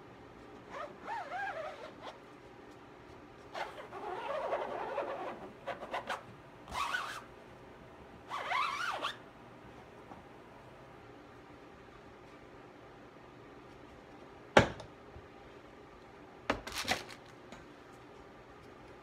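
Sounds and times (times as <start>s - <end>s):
squeegee scraping with squeaks: 0.7s - 2.2s, 3.5s - 7.3s, 8.3s - 9.2s.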